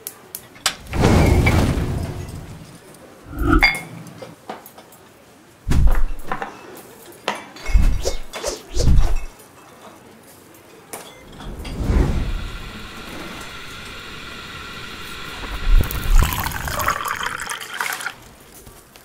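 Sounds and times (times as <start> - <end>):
mug clinking with ring: 3.4 - 3.9.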